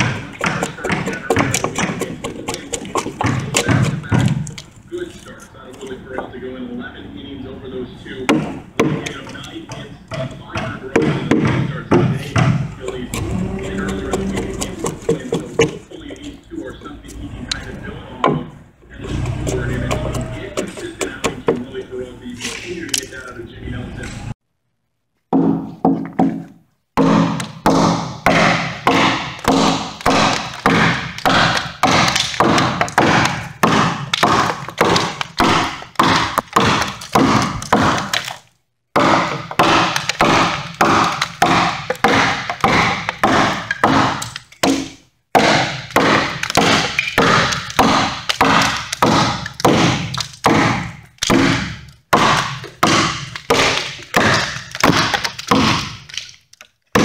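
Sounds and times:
axe chopping wood: 0:00.0 - 0:04.7, 0:08.3 - 0:15.8, 0:25.3 - 0:38.4, 0:39.0 - 0:56.3.

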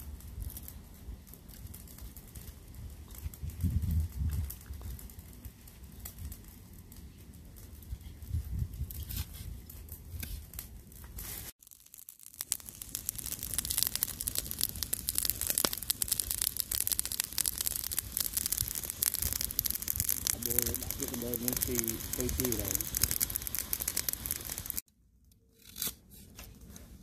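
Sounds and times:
meat sizzling in hot oil: 0:11.6 - 0:24.8.

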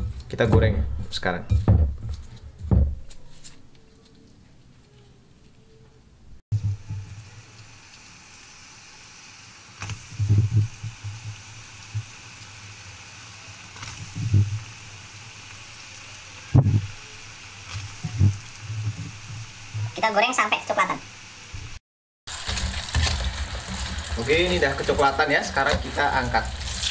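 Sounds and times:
low thumps: 0:00.0 - 0:03.1
oil sizzling while deep-frying: 0:06.5 - 0:26.9.

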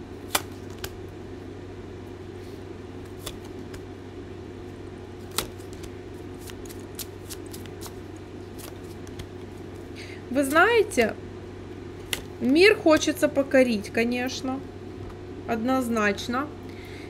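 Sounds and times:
steady low hum: 0:00.0 - 0:17.0
cards clicking and snapping: 0:00.2 - 0:01.0, 0:03.0 - 0:03.8, 0:05.2 - 0:09.6, 0:12.0 - 0:12.3.

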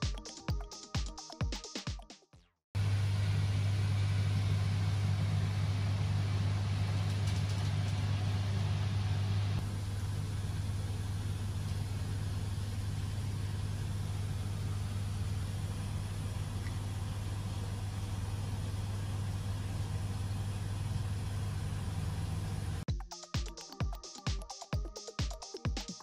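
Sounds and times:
electronic music with a beat: 0:00.0 - 0:02.6, 0:22.9 - 0:26.0.

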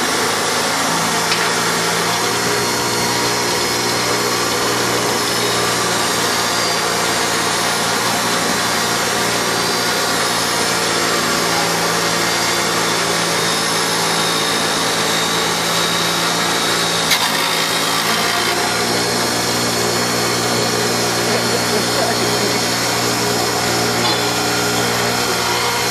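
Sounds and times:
bench grinder motor humming: 0:00.0 - 0:25.9
steel grinding on wheel: 0:00.0 - 0:25.9.

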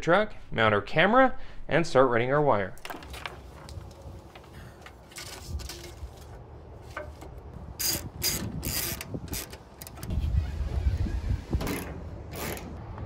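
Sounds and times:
ratchet screwdriver clicking: 0:07.8 - 0:10.1.

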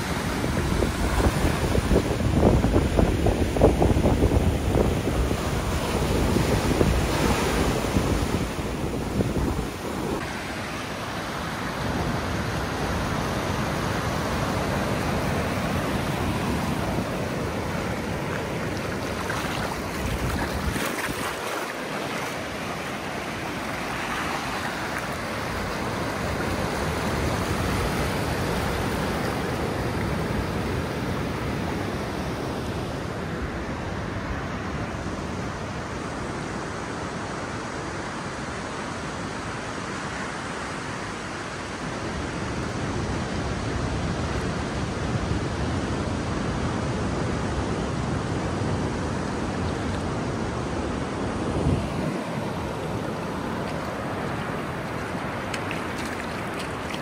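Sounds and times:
wind buffeting microphone: 0:00.0 - 0:10.3, 0:14.9 - 0:22.6
ocean surf breaking: 0:00.0 - 0:36.0, 0:36.6 - 0:57.0.

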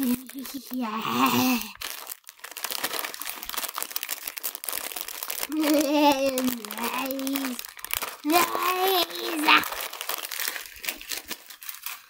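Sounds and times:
child's voice: 0:00.0 - 0:01.8, 0:05.5 - 0:07.6, 0:08.2 - 0:09.8
crinkly rustling of plush toys: 0:00.0 - 0:12.0.

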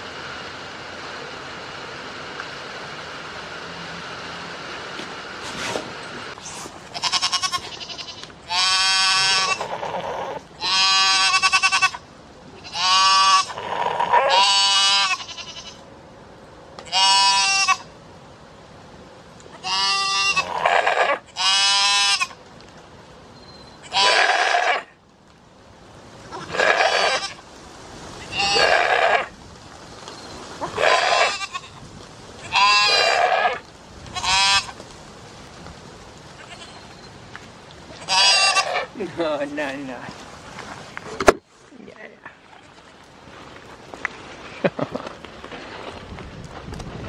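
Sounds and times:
steady hiss: 0:00.0 - 0:14.0, 0:24.8 - 0:47.0
goat bleating: 0:06.9 - 0:12.0, 0:12.6 - 0:15.8, 0:16.9 - 0:17.9, 0:19.5 - 0:22.4, 0:23.8 - 0:24.9, 0:26.3 - 0:27.4, 0:28.2 - 0:29.3, 0:30.6 - 0:31.8, 0:32.4 - 0:34.8, 0:36.4 - 0:36.8, 0:38.0 - 0:39.0.

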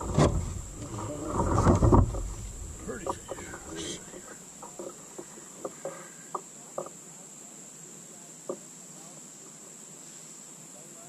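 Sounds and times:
light clicks and knocks: 0:00.0 - 0:07.0
steady high-pitched whine: 0:00.0 - 0:11.0.

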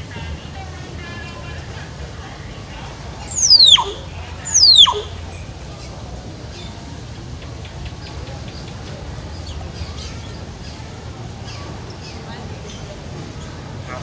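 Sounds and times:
bird whistles sweeping down: 0:03.3 - 0:05.1.

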